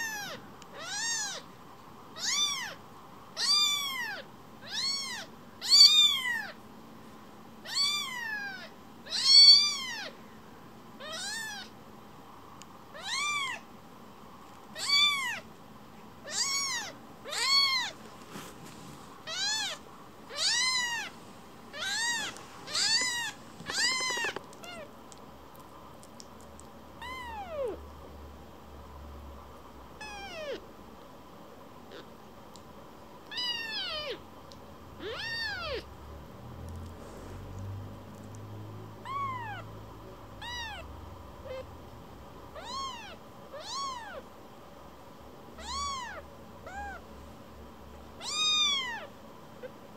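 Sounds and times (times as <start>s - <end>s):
kitten meowing: 0.0s - 1.4s, 2.2s - 2.8s, 3.4s - 6.6s, 7.6s - 10.1s, 11.0s - 11.7s, 13.0s - 13.6s, 14.8s - 15.4s, 16.2s - 18.0s, 19.3s - 21.1s, 21.7s - 24.9s, 27.0s - 27.8s, 30.0s - 30.6s, 33.3s - 34.2s, 35.0s - 35.9s, 39.0s - 39.6s, 40.4s - 41.7s, 42.6s - 44.2s, 45.6s - 47.0s, 48.2s - 49.1s.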